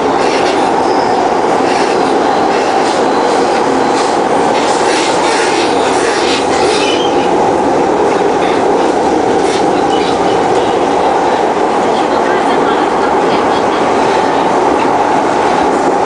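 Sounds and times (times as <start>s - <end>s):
train wheels rumbling on rail: 0.0s - 16.0s
high wheel squeal: 6.6s - 7.3s.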